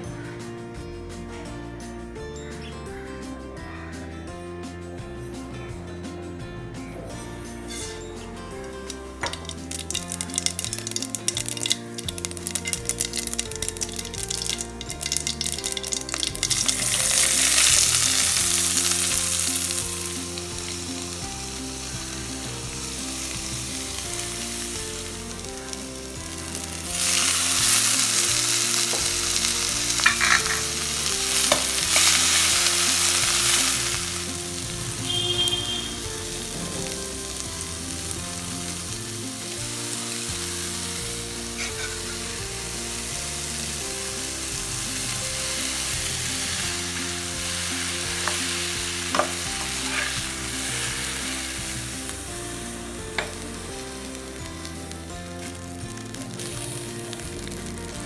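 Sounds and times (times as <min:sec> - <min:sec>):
food sizzling in hot oil: 0:07.6 - 0:58.0
stirring in a pan: 0:08.6 - 0:21.2, 0:46.2 - 0:51.8.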